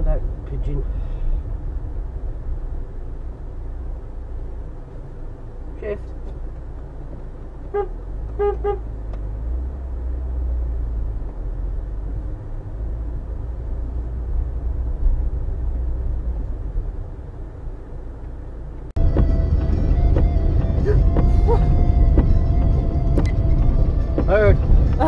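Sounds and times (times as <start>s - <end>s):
car engine and tyres rumbling: 0.0s - 25.0s
car horn toots: 7.7s - 8.9s.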